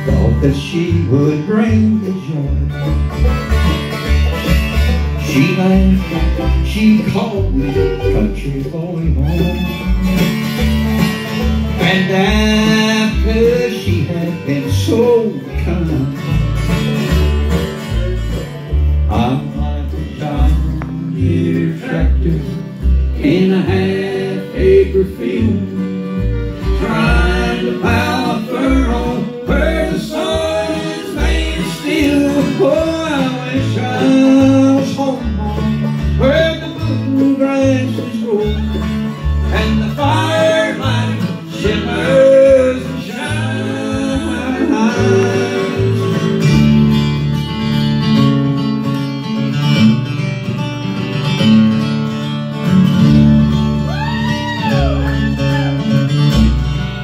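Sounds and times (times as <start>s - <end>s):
acoustic guitar: 0.0s - 57.0s
banjo: 0.0s - 57.0s
fiddle: 0.0s - 57.0s
upright bass: 0.0s - 57.0s.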